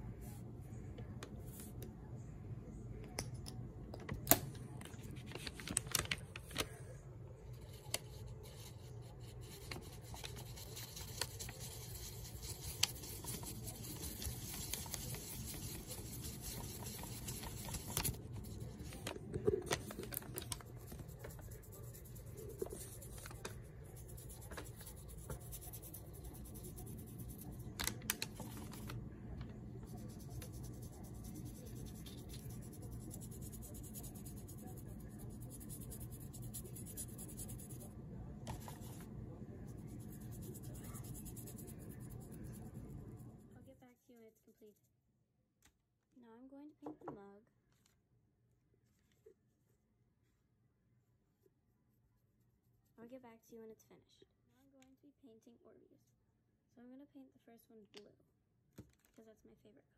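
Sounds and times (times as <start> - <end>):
paintbrush scraping and dabbing: 7.5 - 29.0, 29.7 - 37.9, 38.5 - 43.5.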